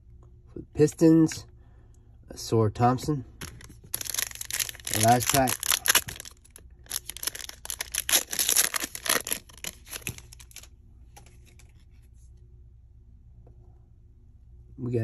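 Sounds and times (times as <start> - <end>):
wrapper tearing and crinkling: 3.4 - 10.7.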